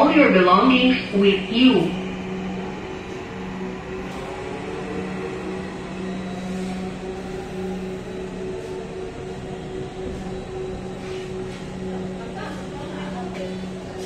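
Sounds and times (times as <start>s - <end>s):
train car low drone: 0.0s - 14.0s.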